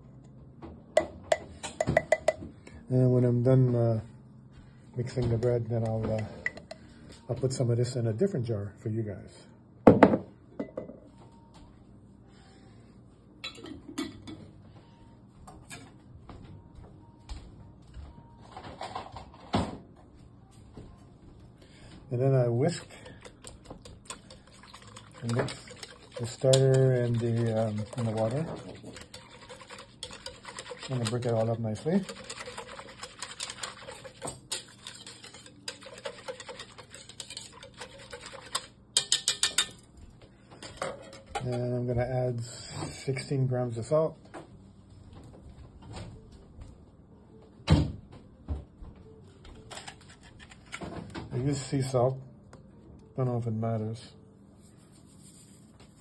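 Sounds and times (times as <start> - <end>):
whisk scraping a bowl: 22.3 - 39.7
kitchen utensils clinking: 24.9 - 39.8.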